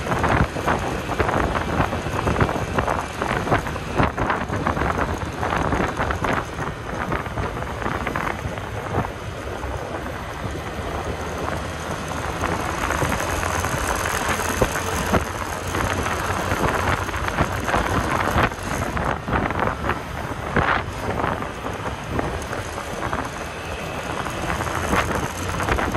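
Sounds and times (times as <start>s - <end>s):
scooter engine running: 0.0s - 25.9s
tyres on road: 0.0s - 25.9s
wind buffeting microphone: 0.0s - 25.9s.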